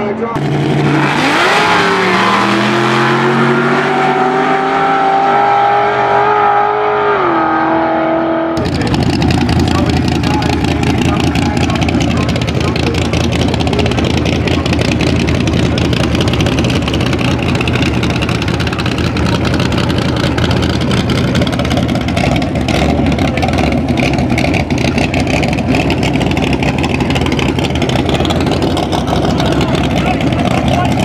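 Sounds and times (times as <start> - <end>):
car engine idling unevenly: 8.6 - 31.0.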